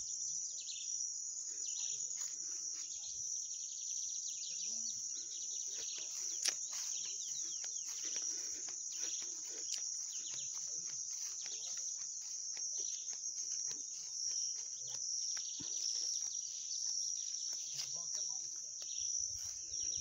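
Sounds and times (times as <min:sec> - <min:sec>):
high-pitched insect drone: 0:00.0 - 0:20.0
scattered ticks: 0:05.8 - 0:19.0.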